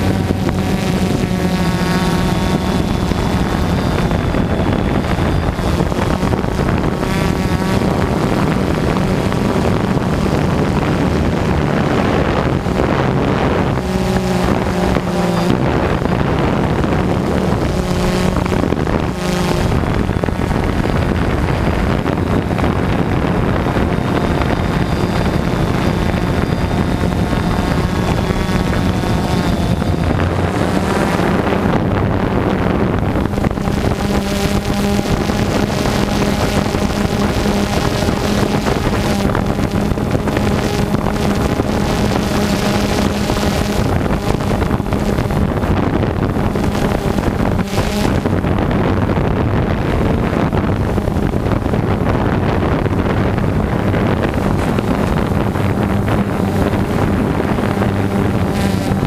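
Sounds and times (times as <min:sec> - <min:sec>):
drone propellers buzzing: 0:00.0 - 0:59.0
wind noise on microphone: 0:00.0 - 0:59.0.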